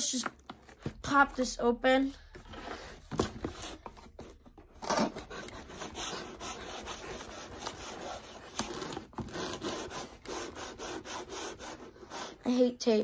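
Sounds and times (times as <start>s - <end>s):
knife sawing packing tape: 4.8s - 12.5s.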